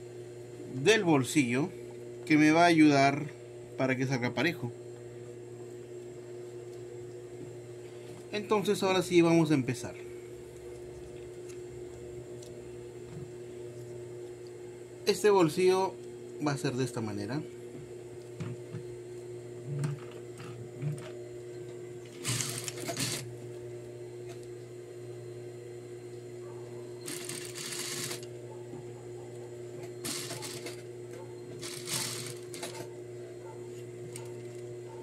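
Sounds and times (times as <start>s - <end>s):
sewing machine stitching: 22.1s - 23.3s, 27.0s - 28.3s, 30.0s - 30.8s, 31.6s - 32.9s.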